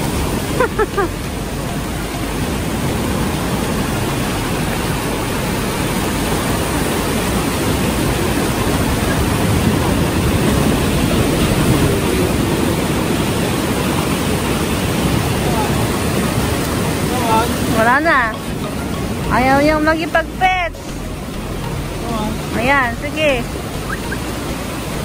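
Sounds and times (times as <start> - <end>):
surf breaking on beach: 0.0 - 25.0
short falling chirps: 23.9 - 24.2.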